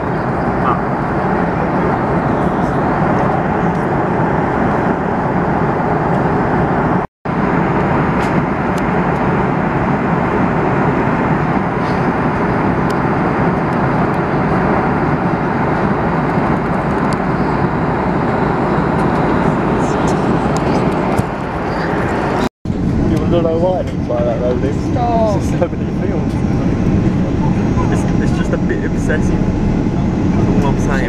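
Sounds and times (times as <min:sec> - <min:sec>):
airliner cabin engine and airflow noise: 0:00.0 - 0:31.0.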